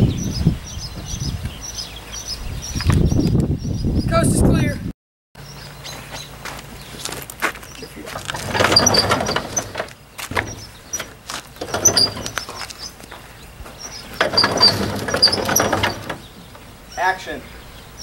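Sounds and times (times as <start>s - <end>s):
sharp knocks: 8.1s - 12.6s
wooden door scraping and rattling: 8.1s - 13.0s, 13.8s - 16.8s.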